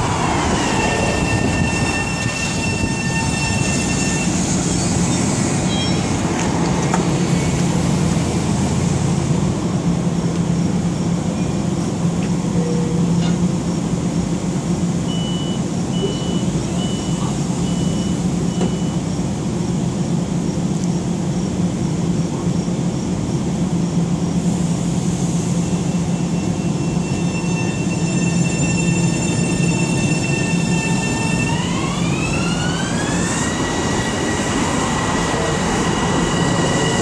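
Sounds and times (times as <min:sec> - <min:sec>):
train motor whine: 0:00.0 - 0:06.2
electric train hum: 0:00.0 - 0:37.0.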